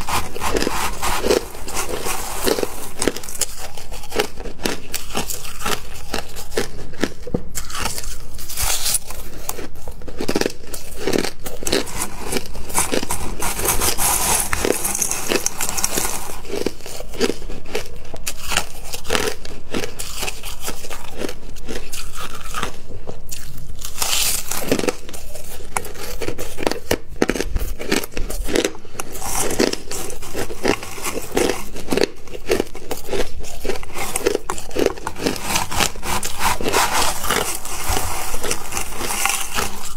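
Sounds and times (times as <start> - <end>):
chewing crushed ice: 0.0 - 39.9.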